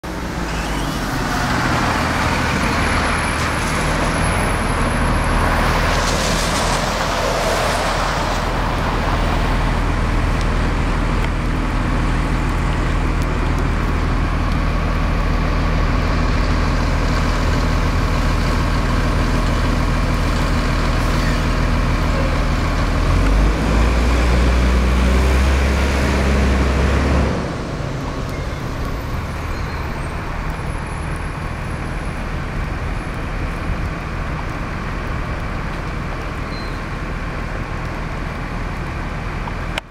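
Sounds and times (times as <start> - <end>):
street traffic: 0.0 - 39.9
bus engine idling: 6.4 - 23.2, 26.1 - 36.3.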